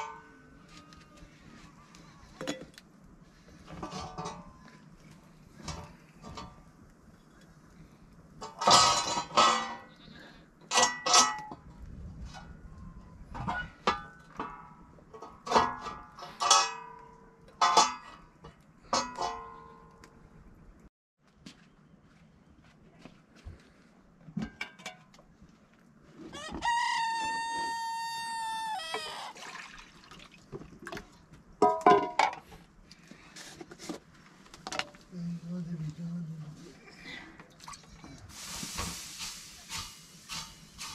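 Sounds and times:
metal bowls and pots clanging: 8.4 - 9.9, 10.7 - 11.6.

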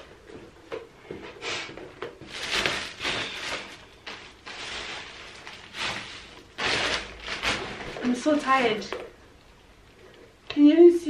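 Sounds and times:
plastic bags rustling: 2.0 - 9.2.

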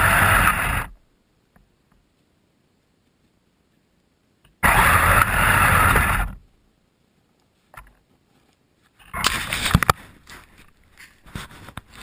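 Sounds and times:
toy snowcat motor and tracks: 0.0 - 1.0, 4.6 - 6.4.

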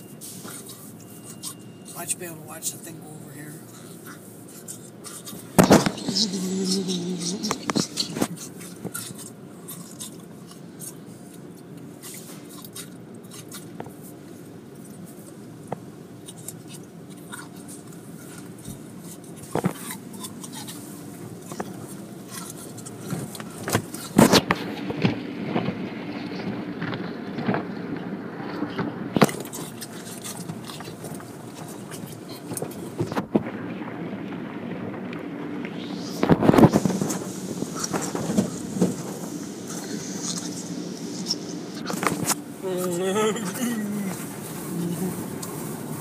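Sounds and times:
low hum: 0.0 - 46.0
car wash brushes slapping and scraping: 43.2 - 46.0.

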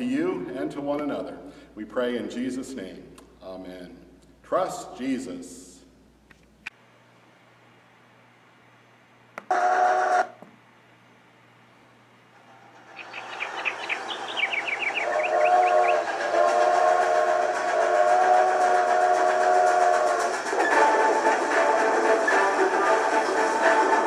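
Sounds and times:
steam train whistle toot: 9.5 - 10.4, 14.3 - 24.0
steam train chuffing: 12.4 - 24.0
quick rising chirps: 12.5 - 16.0.

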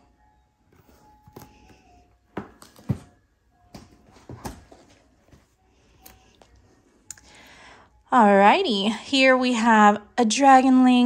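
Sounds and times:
cardboard boxes knocking and tapping: 2.3 - 5.0.

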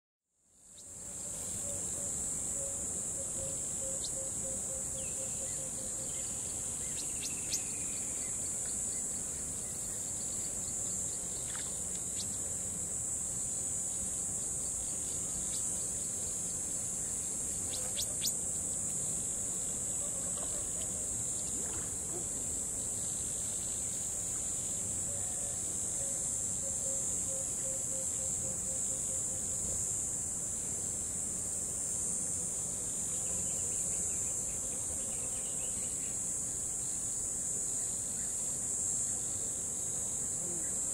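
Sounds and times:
low pulsing insect trill: 0.3 - 40.9
high-pitched insect chorus: 0.5 - 40.9.

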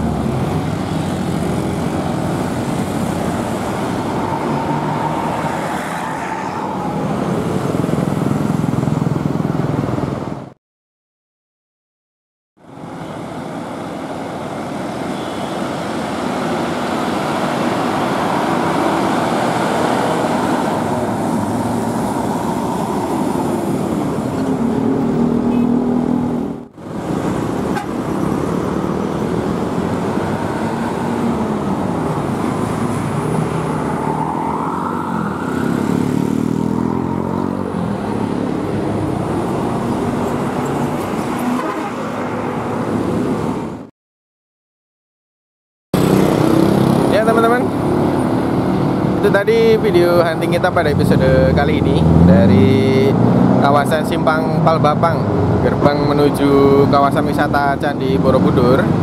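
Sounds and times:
vehicle engines pulling away: 13.3 - 43.6, 46.0 - 49.3, 50.4 - 59.0
vehicle horn: 25.5 - 25.8, 27.7 - 28.0.

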